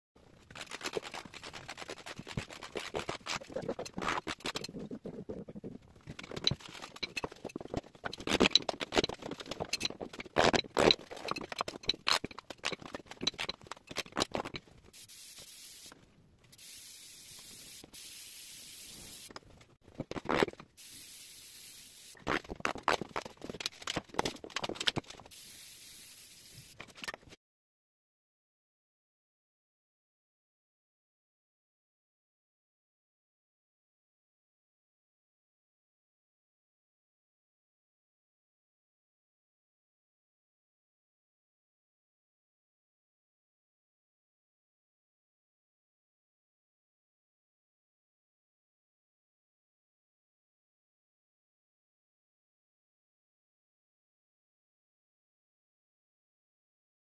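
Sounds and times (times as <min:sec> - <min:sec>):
steady hiss: 0:15.0 - 0:16.0, 0:16.6 - 0:19.3, 0:20.8 - 0:22.2, 0:25.3 - 0:26.8.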